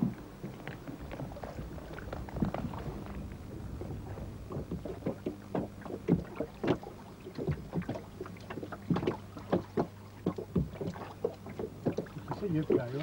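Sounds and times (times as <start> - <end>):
steady low hum: 0.0 - 13.0
water slapping against boat hull: 0.0 - 13.0.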